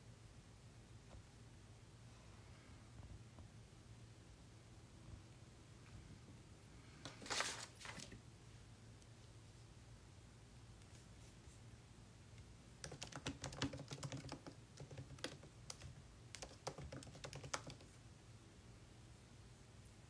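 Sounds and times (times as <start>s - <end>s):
typing on laptop keyboard: 12.8s - 18.0s.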